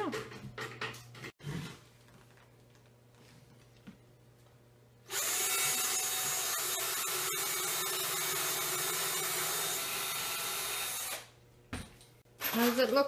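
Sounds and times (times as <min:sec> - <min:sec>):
cordless drill driving screws: 0:05.1 - 0:11.3.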